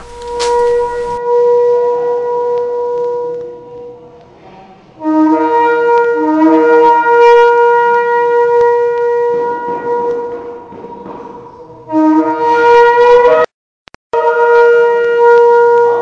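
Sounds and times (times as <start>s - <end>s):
shofar blast: 0.0s - 3.6s, 5.0s - 10.5s, 11.9s - 13.5s, 14.2s - 16.0s.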